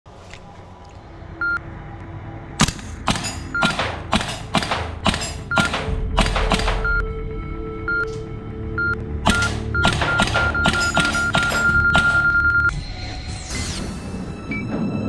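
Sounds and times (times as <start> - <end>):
low steady drone: 0.1 - 5.2
short electronic beeps: 8.8 - 12.7.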